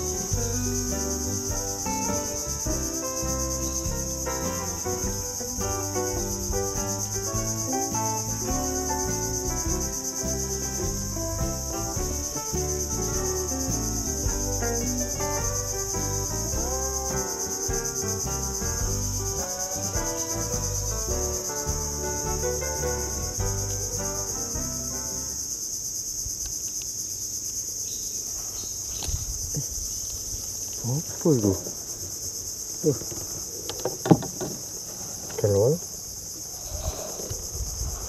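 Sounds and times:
background music: 0.0s - 25.5s
insects buzzing: 0.0s - 38.0s.

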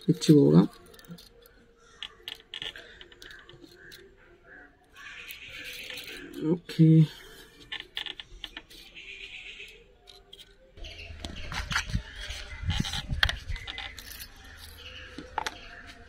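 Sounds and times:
matchbox clicks and rattles: 0.6s - 4.1s, 5.0s - 6.4s, 9.7s - 15.8s.

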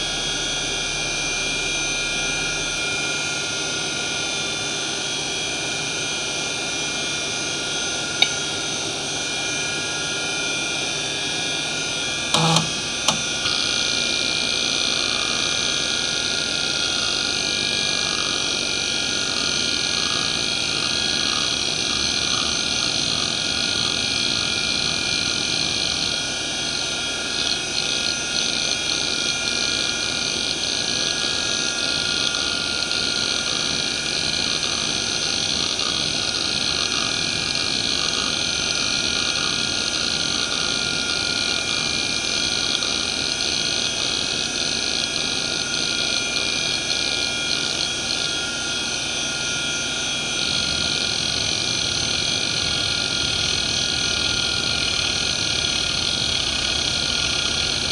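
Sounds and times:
spindle whine: 0.0s - 57.9s
hard drive seek ticks: 12.4s - 13.5s.

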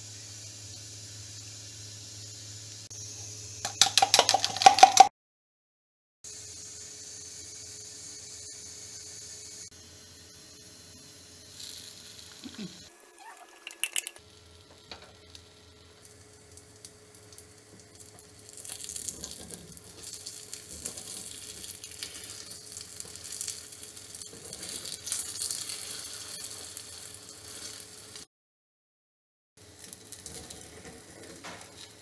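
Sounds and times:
batter sizzling in pan: 0.0s - 5.0s, 6.3s - 28.3s, 29.6s - 32.0s.

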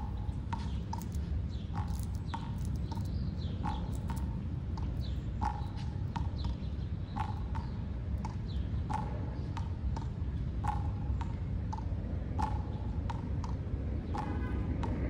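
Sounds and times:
steady low rumble: 0.0s - 6.4s.

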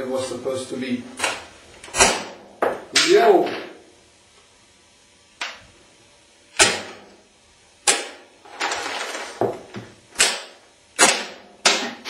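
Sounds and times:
rifle firing sharp cracks: 10.2s - 11.9s.

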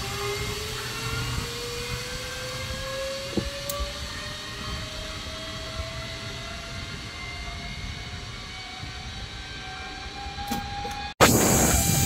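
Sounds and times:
wind noise: 0.0s - 12.0s
zipline pulleys whirring: 0.0s - 12.0s.

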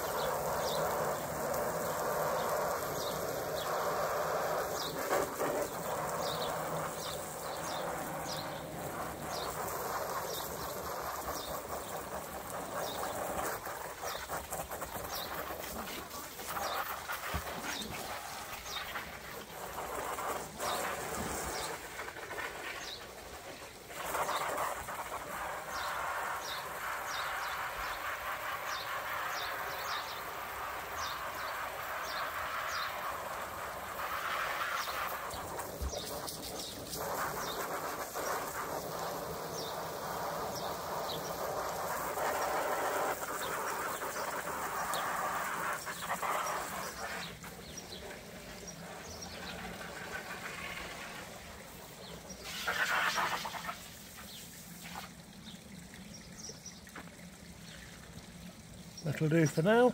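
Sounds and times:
hose spray hissing and splashing: 0.0s - 59.9s.

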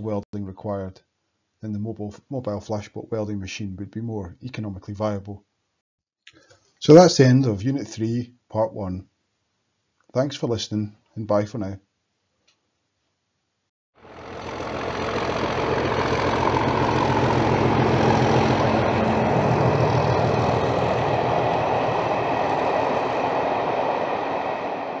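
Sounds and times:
diesel locomotive engine running: 14.0s - 25.0s.

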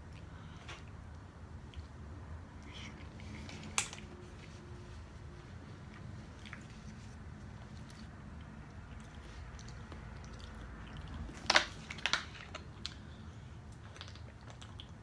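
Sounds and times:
chewing and mouth clicks: 5.8s - 15.0s
plastic bottle crackling: 11.3s - 13.0s.

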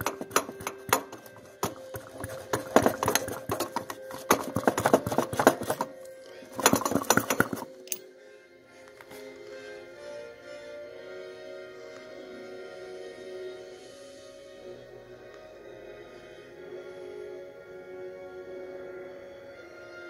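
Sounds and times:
hand vacuum pump clicking: 0.0s - 8.0s.

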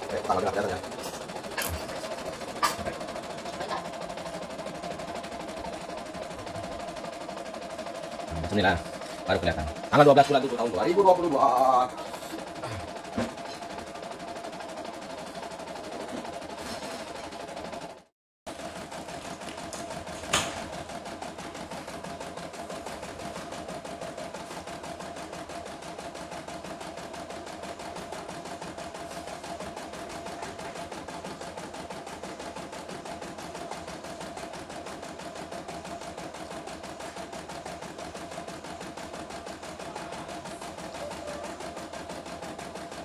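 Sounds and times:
embroidery machine needle chatter: 0.0s - 18.0s, 18.6s - 43.0s
machine hum: 0.0s - 26.8s.

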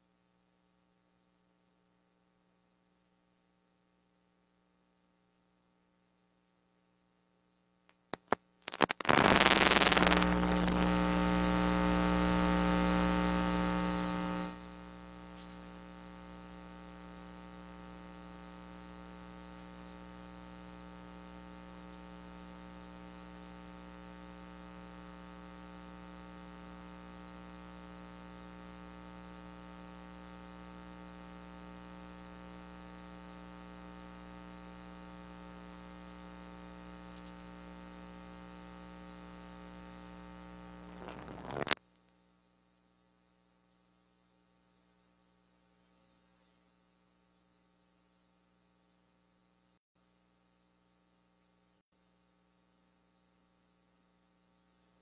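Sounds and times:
electrical mains hum: 2.3s - 48.8s
crackling clicks and static: 7.8s - 42.3s
loud electrical buzz: 8.2s - 41.8s.

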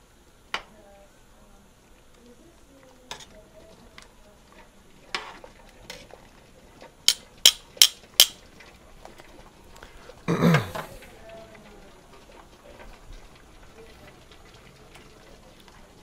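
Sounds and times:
tongs stirring pasta in pot: 2.1s - 9.8s.

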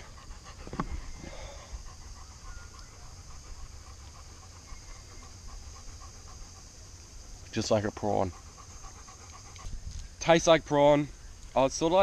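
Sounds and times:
dog panting: 0.0s - 9.8s.

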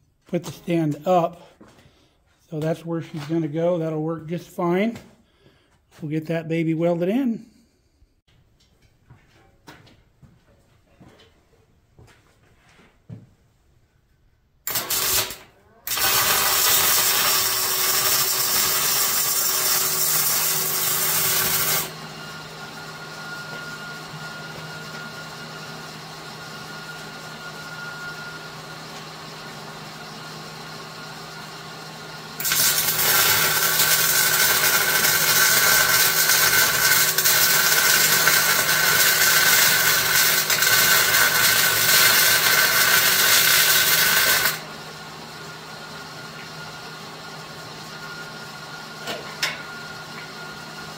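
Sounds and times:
arc welding crackling hiss: 14.7s - 21.9s, 32.4s - 44.6s.

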